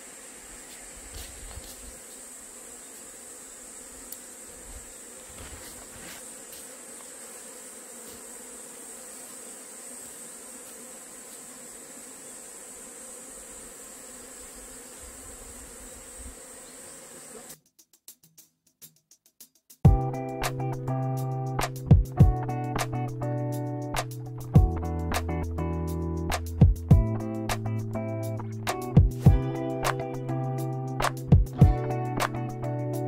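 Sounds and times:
bees buzzing: 0.0s - 17.6s
high insect whine: 0.0s - 17.6s, 20.0s - 33.0s.

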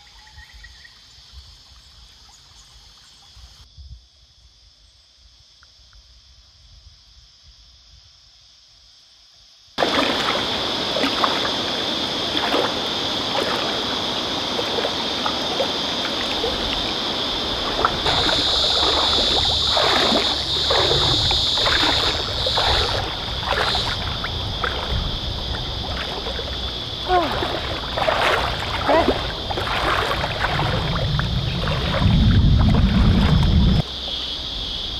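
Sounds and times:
water splashing and sloshing: 9.8s - 34.3s.

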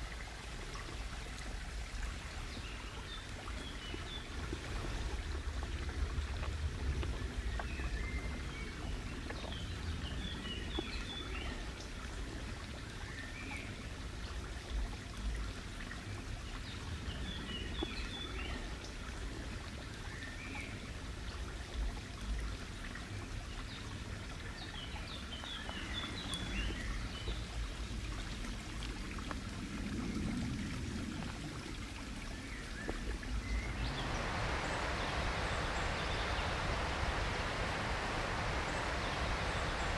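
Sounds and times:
steady background hiss: 0.0s - 39.9s
low rumble: 27.8s - 39.9s.

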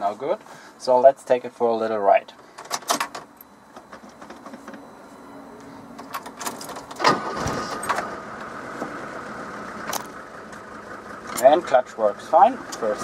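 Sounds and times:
diesel engine starting: 6.0s - 13.0s.

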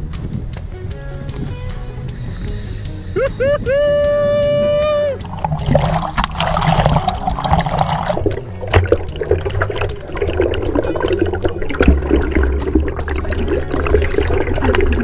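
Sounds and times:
water sloshing and gurgling: 4.4s - 15.0s
small water splashes: 5.1s - 15.0s.

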